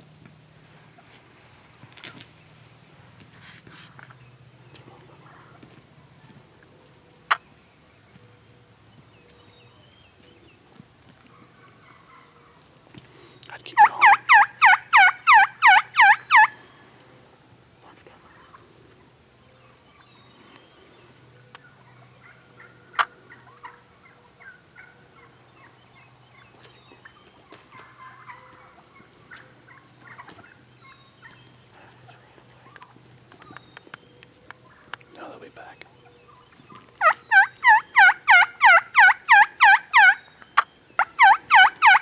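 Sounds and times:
turkey yelping and clucking: 0:13.8 - 0:16.6, 0:21.5 - 0:26.1, 0:27.1 - 0:33.5, 0:34.6 - 0:35.0, 0:36.2 - 0:42.0.

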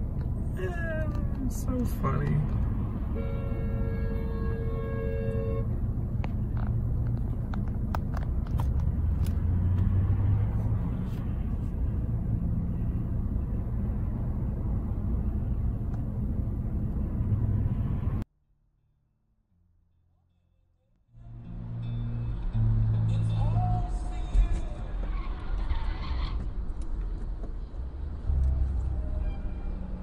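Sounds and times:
vehicle rumble from inside cabin: 0:00.0 - 0:18.3, 0:21.2 - 0:30.0
car horn: 0:03.1 - 0:05.8.

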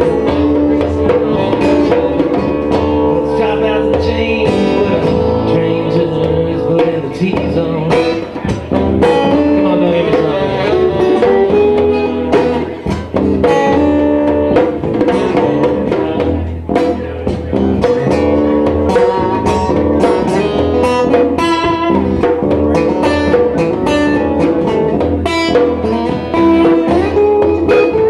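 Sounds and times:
saxophone: 0:00.0 - 0:03.1, 0:08.8 - 0:12.7, 0:24.9 - 0:28.0
hand drum rhythm: 0:00.0 - 0:28.0
strummed acoustic guitars: 0:00.0 - 0:28.0.

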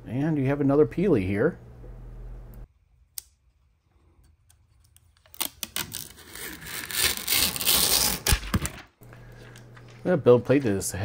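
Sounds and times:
plastic film peeling: 0:04.8 - 0:10.1.

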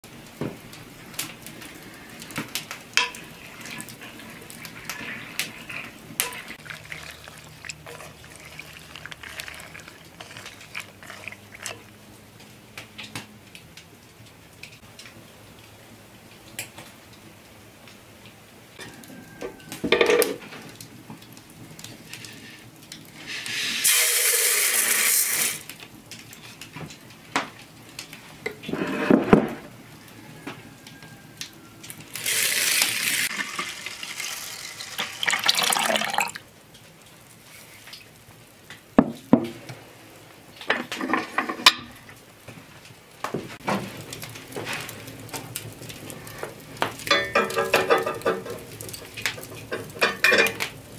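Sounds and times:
liquid pouring into a pot: 0:02.9 - 0:11.9, 0:32.1 - 0:36.5
pottery and cookware clinking: 0:03.0 - 0:11.8, 0:19.9 - 0:20.4, 0:47.0 - 0:50.7.

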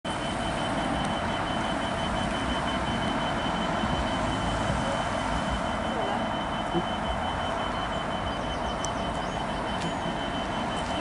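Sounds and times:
diesel locomotive engine rumbling: 0:00.1 - 0:11.0
thin steady high tone: 0:00.1 - 0:11.0.

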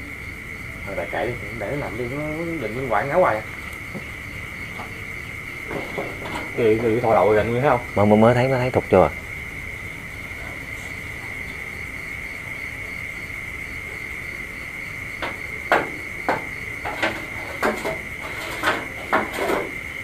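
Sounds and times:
night insects chirring: 0:00.0 - 0:20.0
sharp knocks and taps: 0:15.2 - 0:19.8.

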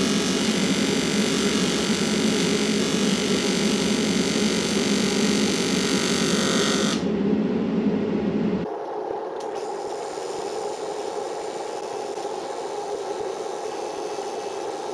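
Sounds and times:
welding arc hissing: 0:00.0 - 0:07.0.

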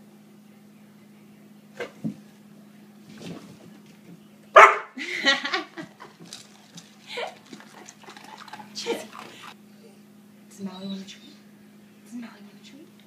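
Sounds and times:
dog barking: 0:04.6 - 0:05.0.

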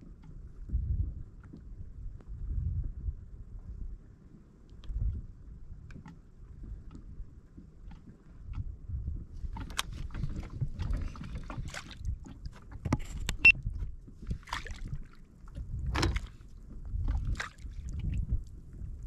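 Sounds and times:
low uneven rumble: 0:00.0 - 0:19.0
water splashing against kayak hull: 0:04.9 - 0:19.0
gear knocking against boat: 0:05.9 - 0:18.4.

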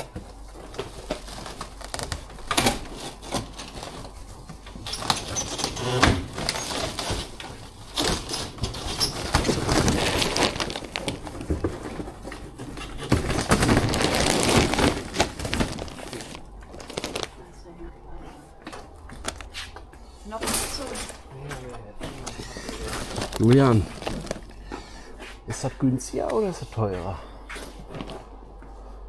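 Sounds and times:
plastic rustling and crinkling: 0:00.0 - 0:17.6, 0:20.6 - 0:24.8.

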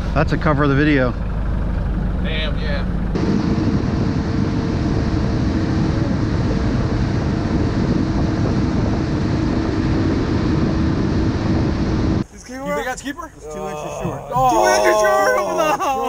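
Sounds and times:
motorboat engine drone: 0:00.0 - 0:12.3
wind noise on microphone: 0:03.2 - 0:12.2.

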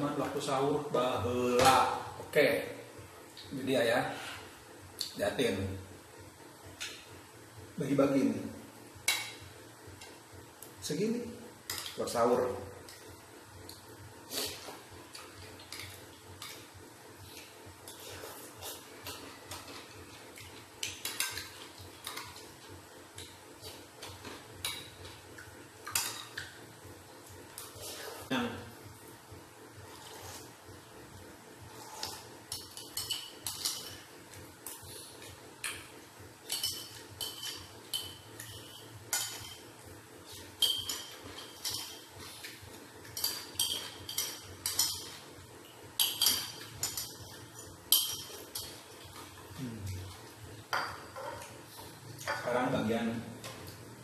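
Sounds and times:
quiet eating noises: 0:11.6 - 0:52.5.

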